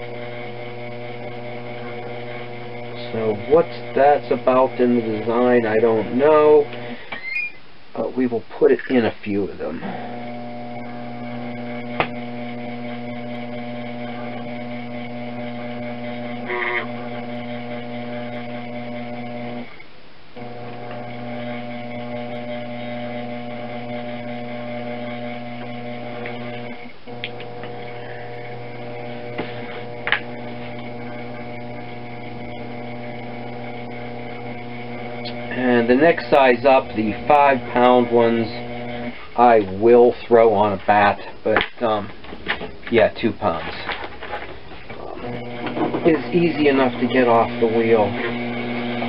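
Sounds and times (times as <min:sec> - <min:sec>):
potter's wheel motor humming: 0:00.0 - 0:07.5, 0:09.0 - 0:19.8, 0:20.4 - 0:49.0.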